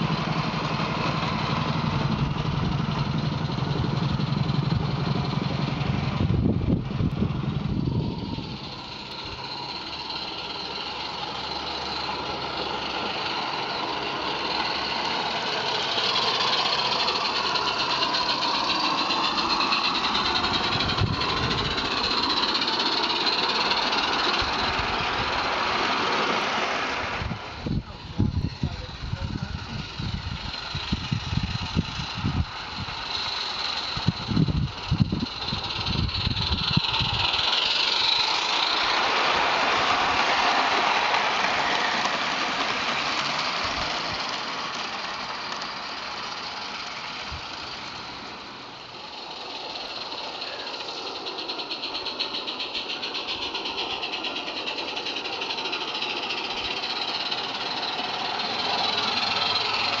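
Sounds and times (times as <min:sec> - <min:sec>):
model train clattering rumble: 0:00.0 - 1:00.0.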